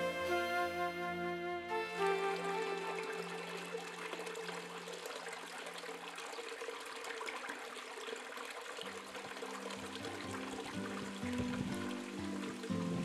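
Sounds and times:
soft background music: 0.0 - 5.6, 9.0 - 13.0
water trickling and splashing: 1.7 - 13.0.

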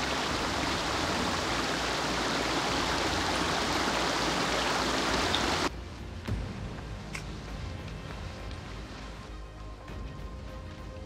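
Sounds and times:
brook running over stones: 0.0 - 5.7.

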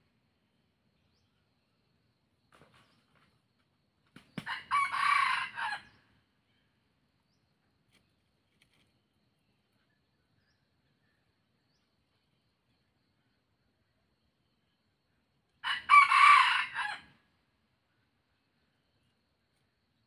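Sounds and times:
rooster crowing: 4.4 - 6.0, 15.6 - 17.2.

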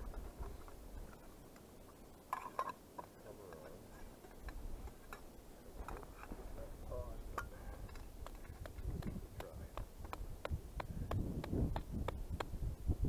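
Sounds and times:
low wind rumble: 4.4 - 13.0.

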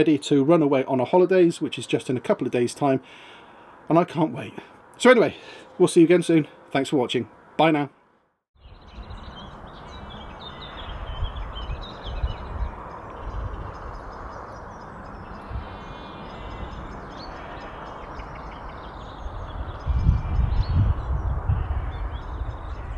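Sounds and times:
birds chirping and calling: 8.6 - 22.9.

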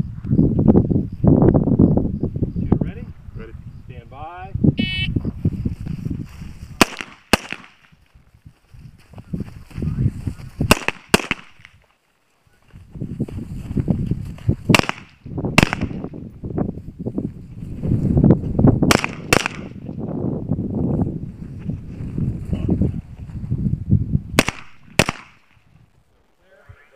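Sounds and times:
wind rumble on microphone: 0.0 - 7.0, 7.8 - 11.8, 12.4 - 26.9
rifle shots: 6.8 - 7.8, 10.7 - 11.7, 14.7 - 16.0, 18.9 - 19.8, 24.4 - 25.5.

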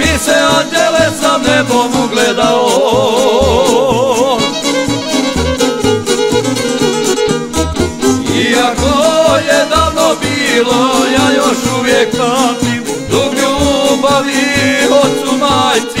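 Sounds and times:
violin melody: 0.0 - 16.0
steady bass beat: 4.9 - 14.3.

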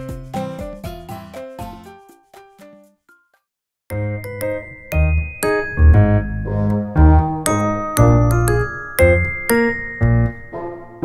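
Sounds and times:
keyboard melody: 3.9 - 11.0
sustained bass notes: 3.9 - 11.0.

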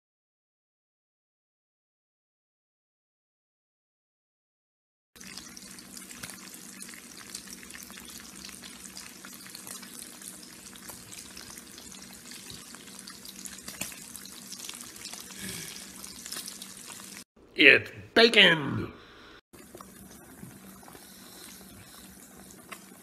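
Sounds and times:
bacon sizzling in a pan: 5.2 - 17.3.

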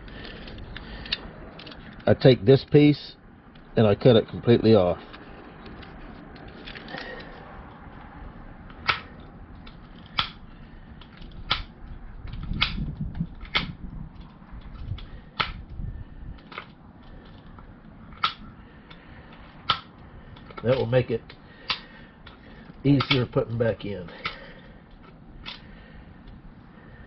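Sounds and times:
low handling rumble: 4.7 - 27.0.

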